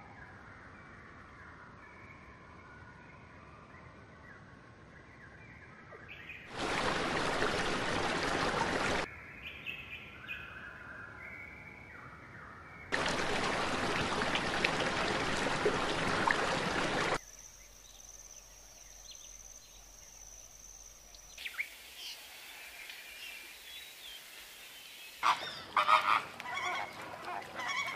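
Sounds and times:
rushing water: 6.5s - 9.1s, 12.9s - 17.2s, 21.5s - 27.9s
small birds chirping: 12.8s - 27.9s.

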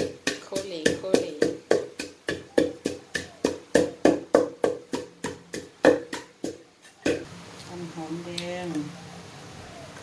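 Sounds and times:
pestle pounding in mortar: 0.0s - 7.3s.

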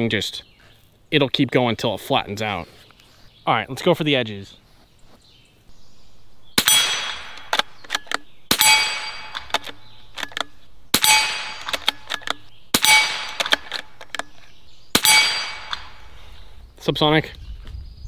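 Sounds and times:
rifle shots: 6.5s - 16.1s
steel target ringing clang: 6.6s - 7.5s, 8.5s - 9.5s, 10.9s - 11.7s, 12.7s - 13.4s, 15.0s - 15.9s
light metallic clicks: 7.0s - 12.5s.

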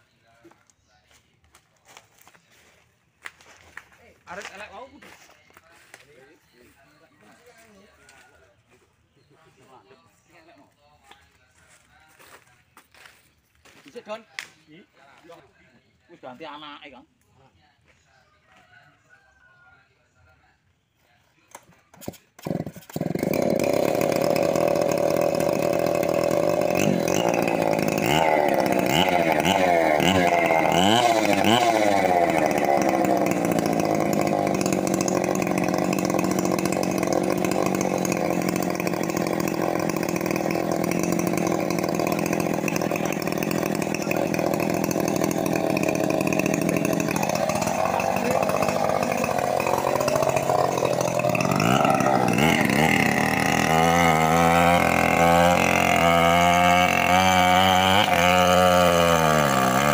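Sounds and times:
chainsaw cutting wood: 21.5s - 59.9s
chainsaw revving: 21.6s - 59.9s.

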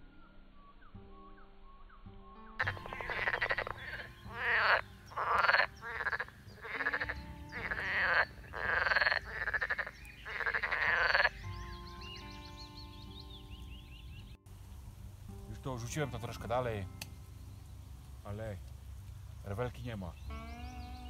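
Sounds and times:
frogs croaking: 2.6s - 15.2s, 20.1s - 21.0s.

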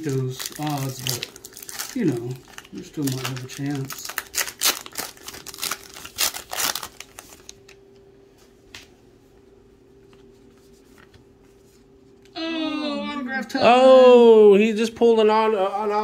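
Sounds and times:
wrapper tearing and crinkling: 0.0s - 7.8s
faint steady hum: 0.0s - 16.0s.

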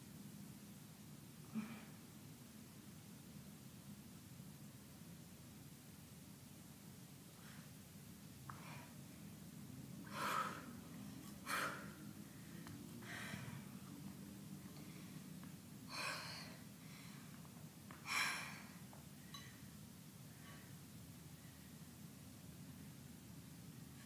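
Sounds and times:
woman breathing hard: 10.0s - 13.9s, 15.9s - 19.4s.

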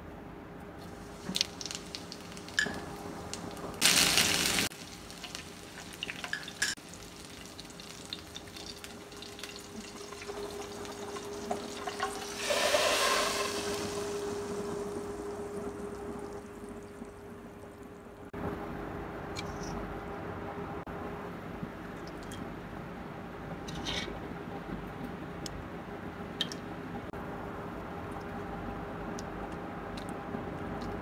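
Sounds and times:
faint steady hum: 0.0s - 31.0s
spices sizzling in hot oil: 0.9s - 17.2s
hot oil hissing poured on food: 1.0s - 16.9s.

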